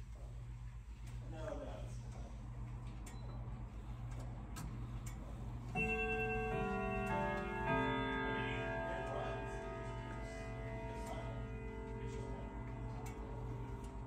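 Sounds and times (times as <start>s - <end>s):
clock chime rods ringing: 5.7s - 14.0s
clock ticking: 5.8s - 14.0s.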